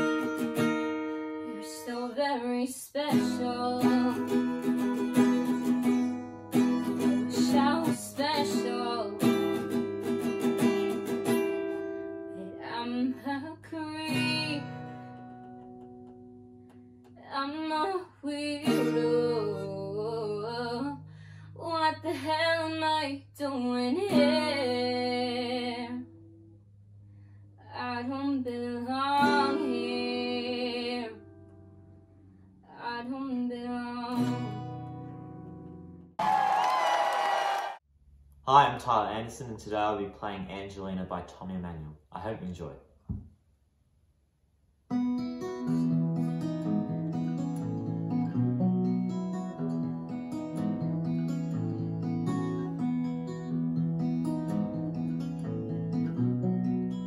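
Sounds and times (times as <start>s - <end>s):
strummed acoustic guitar: 0.0s - 2.0s, 3.0s - 17.1s, 18.6s - 20.7s, 23.6s - 25.4s, 29.1s - 31.6s, 33.9s - 36.1s, 44.9s - 57.0s
woman singing: 1.4s - 4.4s, 7.2s - 9.4s, 12.4s - 14.8s, 17.2s - 21.0s, 21.6s - 26.0s, 27.6s - 31.2s, 32.7s - 34.5s.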